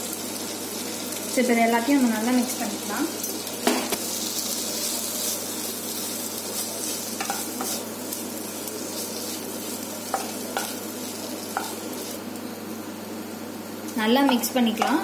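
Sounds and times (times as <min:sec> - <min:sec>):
vegetables sizzling in a pan: 0:00.0 - 0:15.0
spatula scraping and tapping pan: 0:06.6 - 0:07.9, 0:10.0 - 0:10.8, 0:11.5 - 0:12.1.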